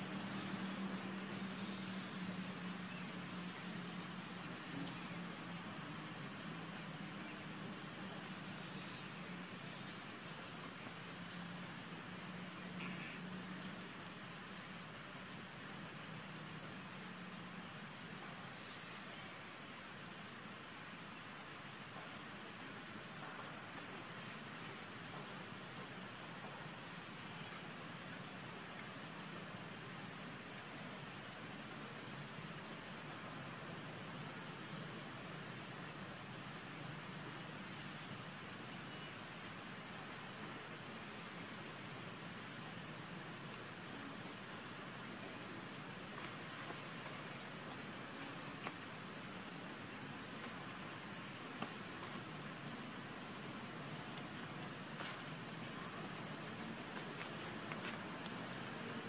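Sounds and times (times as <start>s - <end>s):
high-pitched insect drone: 0.0s - 10.3s, 11.1s - 59.0s
soft background hiss: 0.0s - 59.0s.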